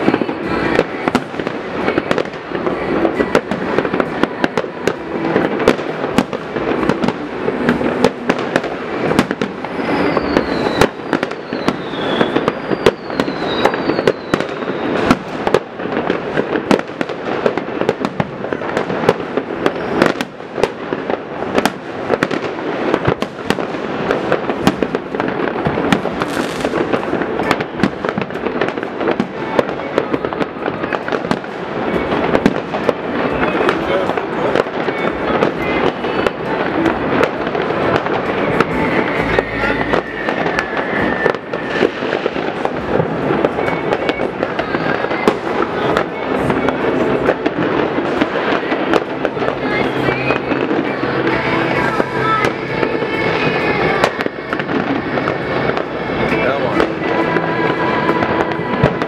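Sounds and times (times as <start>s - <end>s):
firecracker bangs and crackling: 0.0s - 59.0s
falling firework whistles: 7.8s - 17.1s, 24.3s - 59.0s.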